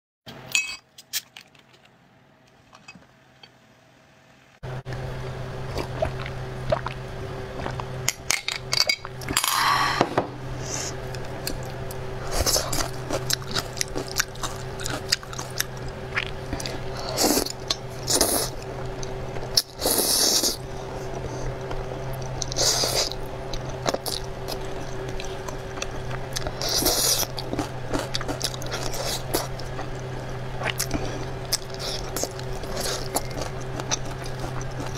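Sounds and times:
low hum: 0:02.7 - 0:34.9
slurping and chewing noodles: 0:05.7 - 0:08.1, 0:10.6 - 0:34.9.

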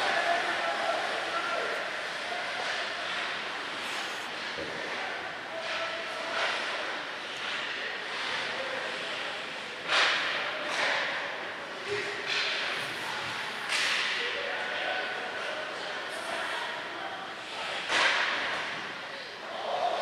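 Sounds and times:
hockey sticks cracking puck: 0:13.7 - 0:14.2, 0:17.9 - 0:18.6.

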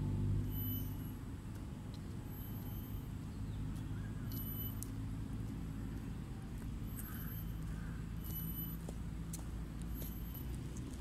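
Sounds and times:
low outdoor rumble: 0:00.0 - 0:11.0
faint high chirps: 0:00.4 - 0:01.2, 0:06.8 - 0:08.9.

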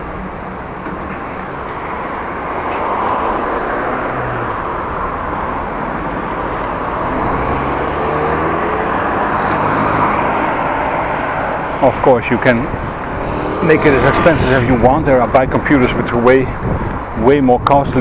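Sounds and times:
road traffic rushing: 0:00.0 - 0:18.0
vehicle engine rising in pitch: 0:06.4 - 0:11.0, 0:13.0 - 0:15.0.

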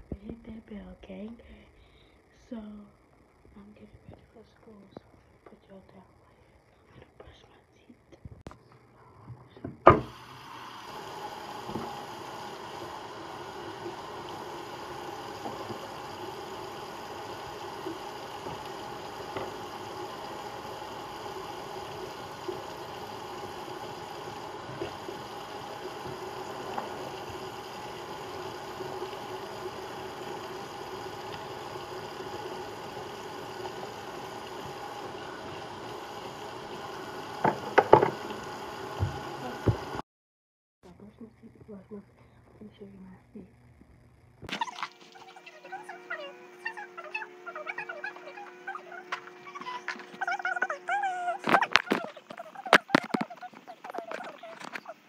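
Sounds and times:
tap water pouring into basin: 0:09.9 - 0:40.0.

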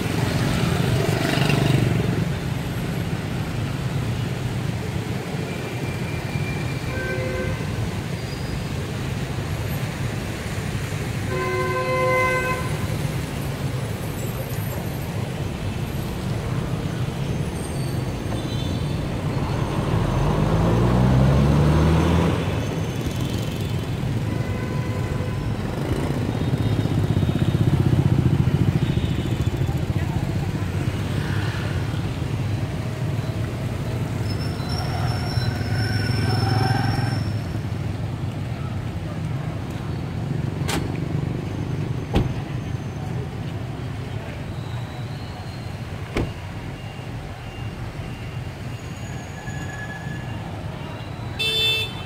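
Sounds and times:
motorbike and car engines: 0:00.0 - 0:05.9, 0:18.8 - 0:24.4, 0:25.3 - 0:44.5
horns honking: 0:51.3 - 0:52.0.

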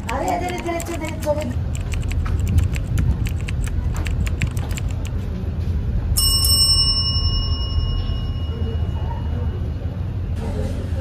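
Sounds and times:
clicks: 0:00.0 - 0:05.2
notification bell ding: 0:06.2 - 0:09.3.

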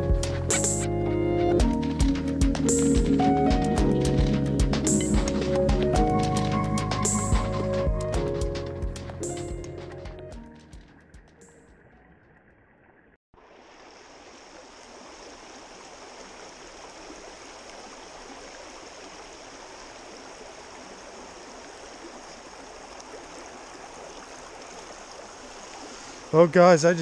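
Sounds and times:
stream rushing over riffles: 0:13.4 - 0:27.0.

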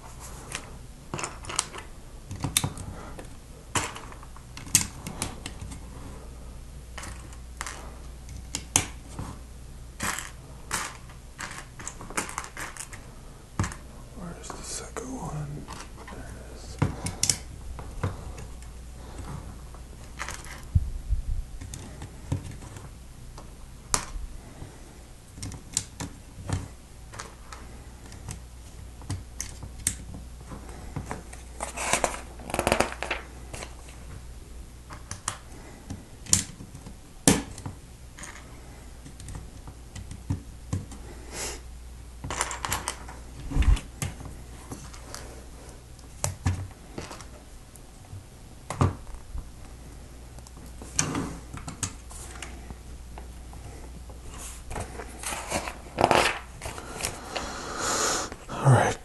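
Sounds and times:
plastic bricks clicking together: 0:10.0 - 0:13.0.

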